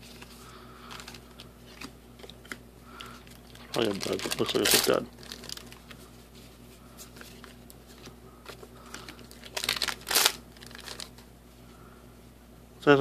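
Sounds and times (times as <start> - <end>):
foil wrapper crinkling: 0.0 - 6.1, 7.2 - 11.3.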